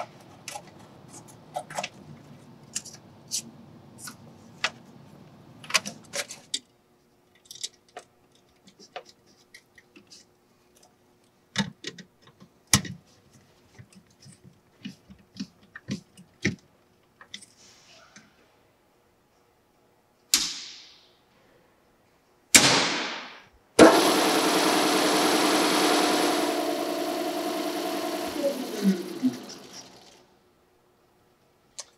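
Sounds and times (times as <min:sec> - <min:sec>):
lathe motor whirring hum: 0:23.8 - 0:30.2.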